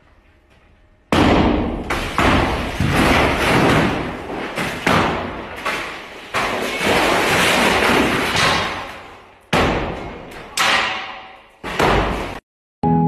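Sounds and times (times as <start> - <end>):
broken glass crashing on floor: 1.2 - 5.0.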